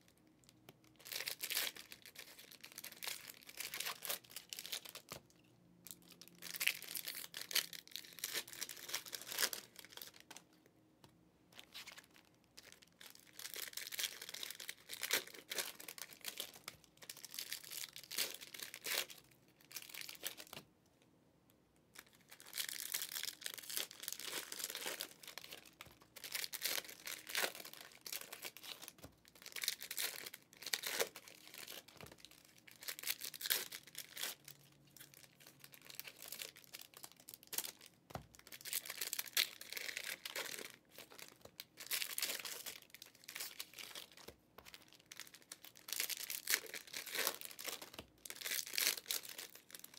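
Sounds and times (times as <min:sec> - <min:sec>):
foil wrappers torn and crinkled: 0:22.2 - 0:49.9.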